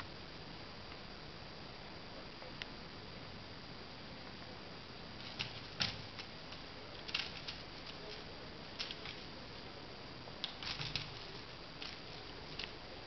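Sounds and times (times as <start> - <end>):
steady faint hiss: 0.0 - 13.0
kitten paws tapping and scrabbling: 5.2 - 9.7, 10.4 - 12.9.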